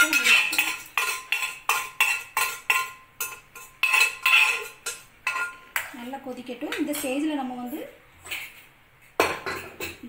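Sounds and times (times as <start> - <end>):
steel ladle scraping metal pot: 0.0 - 5.6.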